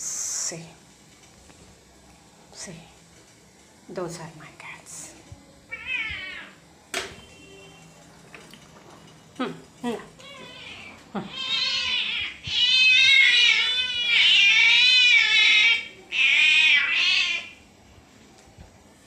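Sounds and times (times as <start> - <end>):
cats meowing: 5.7 - 6.6, 10.2 - 17.6.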